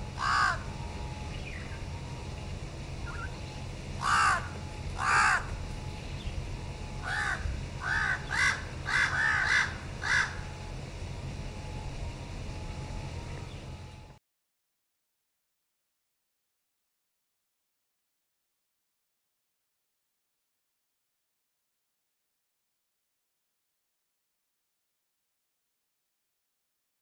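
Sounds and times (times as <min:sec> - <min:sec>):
low background rumble: 0:00.0 - 0:14.2
crow cawing: 0:00.1 - 0:00.8, 0:04.0 - 0:05.7, 0:07.0 - 0:10.6.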